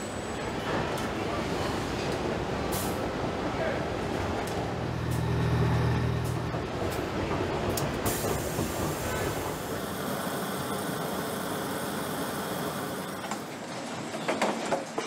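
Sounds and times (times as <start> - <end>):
factory machinery running: 4.0 - 14.0.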